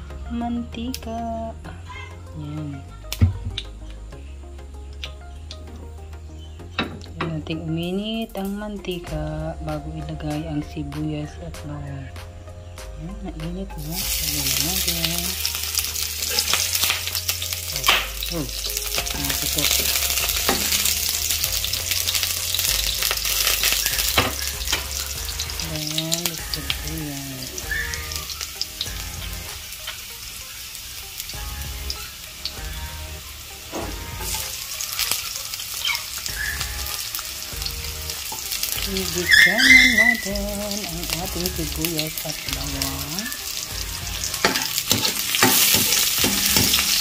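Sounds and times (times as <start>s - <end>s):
garlic sizzling in hot oil: 13.2s - 47.0s.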